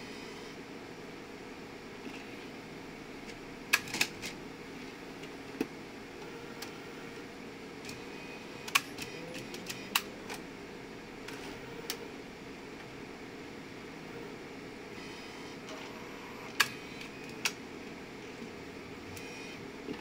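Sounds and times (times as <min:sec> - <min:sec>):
machine hum: 0:00.0 - 0:20.0
mechanism clicks and clacks: 0:03.2 - 0:04.4, 0:07.8 - 0:10.4, 0:16.5 - 0:17.6.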